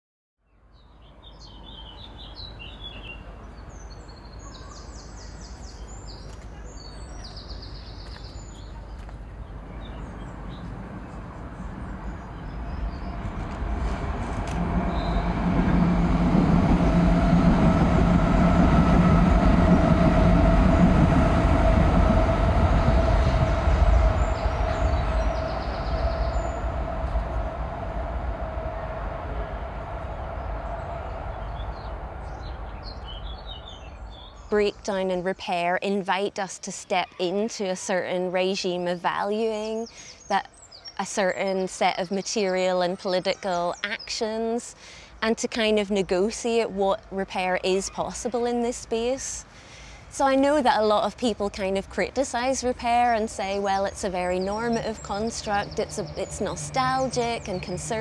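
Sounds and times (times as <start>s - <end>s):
birds chirping: 0.8s - 58.0s
low mechanical rumble with whine: 11.0s - 34.3s.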